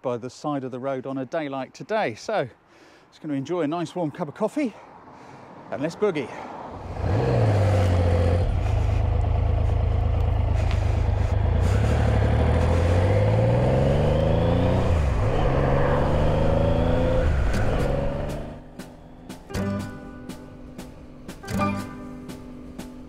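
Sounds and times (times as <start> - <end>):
motorcycle engine accelerating: 6.8 - 18.8.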